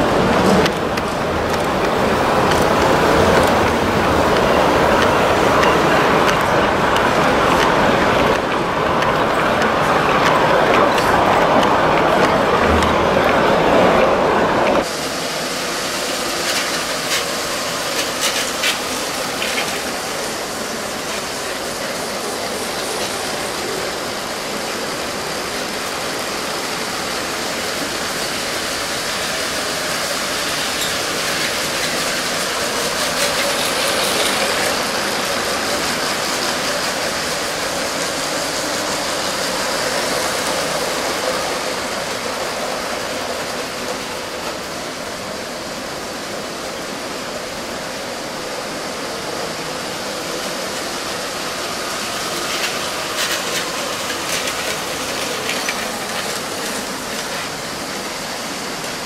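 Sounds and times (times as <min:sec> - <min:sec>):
toy train motors whirring: 0:15.9 - 0:44.0, 0:50.1 - 0:59.0.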